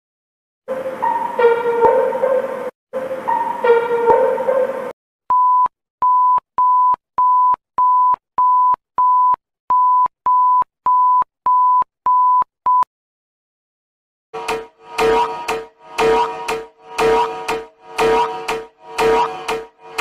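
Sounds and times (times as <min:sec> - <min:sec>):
fuller-toned alarm sound: 0:00.7 - 0:04.9, 0:14.4 - 0:20.0
electronic alarm beeping: 0:14.4 - 0:20.0.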